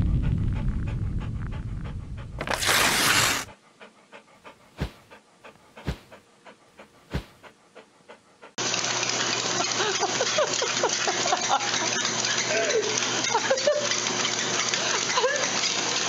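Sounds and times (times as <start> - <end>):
low rumble: 0.0 - 2.5
dog panting: 0.0 - 8.7
loud hissing swish: 5.8 - 6.2, 7.1 - 7.4.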